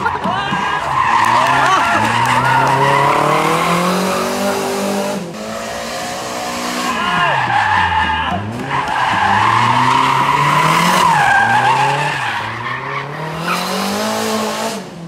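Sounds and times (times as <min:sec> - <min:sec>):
tyres squealing: 0:00.0 - 0:03.8
car engine revving: 0:00.0 - 0:15.0.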